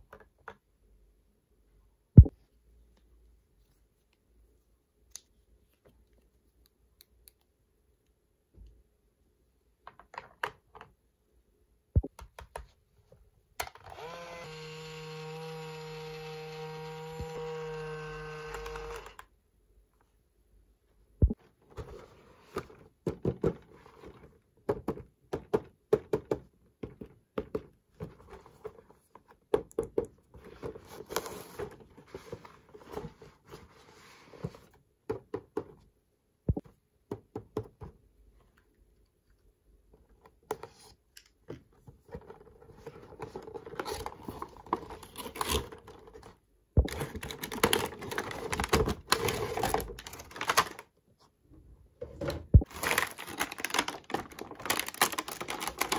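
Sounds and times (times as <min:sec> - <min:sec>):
crinkling and rustling: 0:21.2 - 0:24.9, 0:26.8 - 0:35.8, 0:38.3 - 0:51.4, 0:52.0 - 0:55.9.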